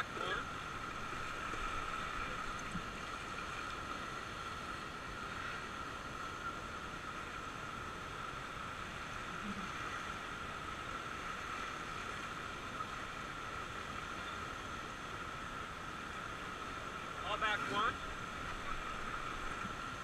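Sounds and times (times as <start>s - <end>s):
steady high hum: 0.0s - 20.0s
river rapids rushing: 16.4s - 20.0s.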